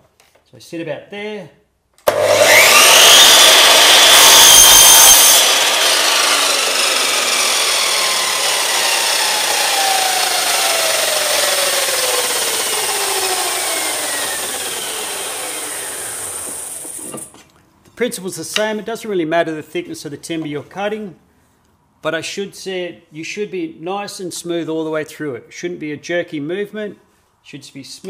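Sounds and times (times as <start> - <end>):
saw blade spinning down whine: 2.1 - 17.2
mitre saw cutting wood: 2.1 - 17.3.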